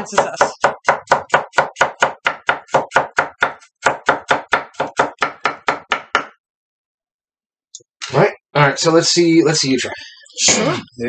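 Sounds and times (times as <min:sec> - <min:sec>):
knife chopping on wooden board: 0:00.0 - 0:06.4.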